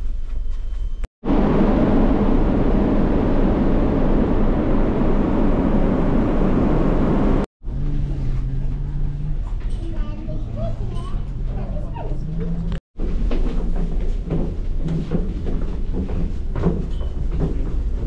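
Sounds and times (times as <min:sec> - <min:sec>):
ship interior hum: 0:00.0 - 0:18.0
churning wake: 0:01.2 - 0:07.5.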